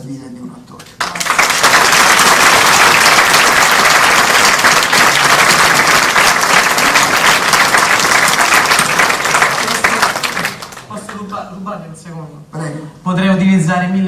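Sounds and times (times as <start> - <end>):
audience applauding: 1.0 - 11.2.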